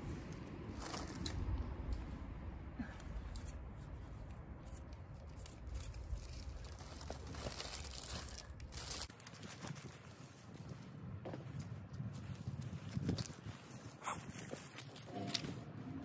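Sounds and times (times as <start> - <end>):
steady low rumble: 0.0 - 9.2
grass tearing and rustling: 3.4 - 10.8, 11.4 - 15.6.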